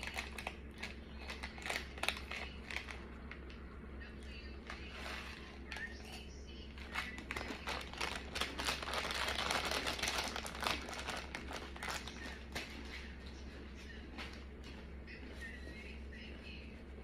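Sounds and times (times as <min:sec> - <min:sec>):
chip bag crinkling: 0:00.0 - 0:03.5, 0:06.8 - 0:13.1.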